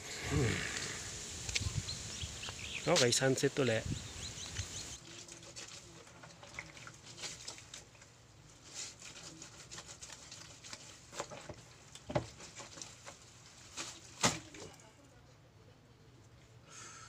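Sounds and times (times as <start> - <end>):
wet cloth splashing and squelching: 5.0 - 14.8.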